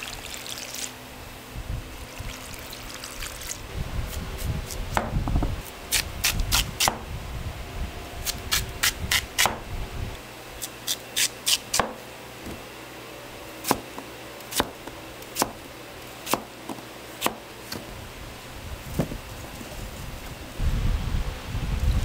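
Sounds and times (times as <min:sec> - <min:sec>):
knife chopping on wooden board: 0:04.9 - 0:05.2, 0:06.2 - 0:07.0, 0:08.5 - 0:09.6, 0:11.2 - 0:12.6, 0:13.6 - 0:15.6, 0:16.2 - 0:17.8.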